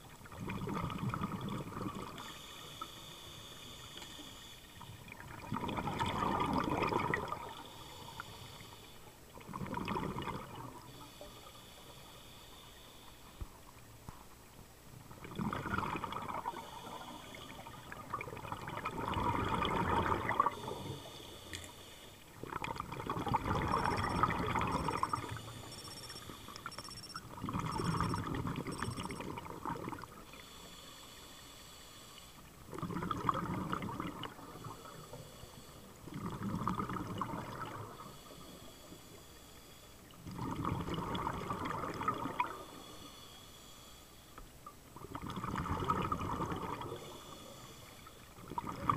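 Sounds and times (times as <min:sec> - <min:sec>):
exhaled bubbles underwater: 0:00.0 - 0:02.4, 0:04.7 - 0:08.7, 0:09.3 - 0:10.9, 0:15.0 - 0:21.1, 0:22.2 - 0:25.7, 0:27.2 - 0:30.4, 0:32.6 - 0:35.2, 0:35.9 - 0:38.4, 0:40.0 - 0:42.8, 0:44.8 - 0:48.9
diver inhaling through regulator: 0:07.4 - 0:09.1, 0:10.8 - 0:13.4, 0:16.4 - 0:17.8, 0:19.7 - 0:22.2, 0:30.3 - 0:32.5.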